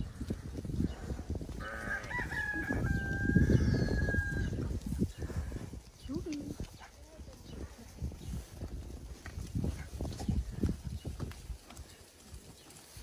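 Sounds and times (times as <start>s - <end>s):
rooster crowing: 1.6s - 4.6s.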